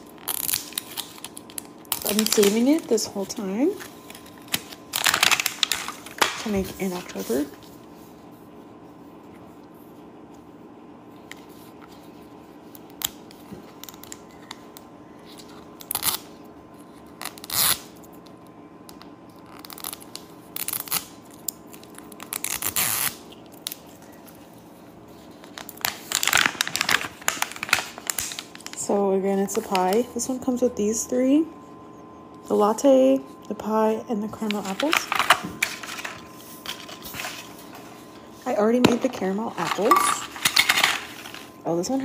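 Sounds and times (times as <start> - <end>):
plastic wrapper crinkling and tearing: 0.0 - 7.7, 12.7 - 16.3, 16.9 - 30.0, 34.4 - 38.2, 38.9 - 41.6
steady low hum: 0.0 - 42.0.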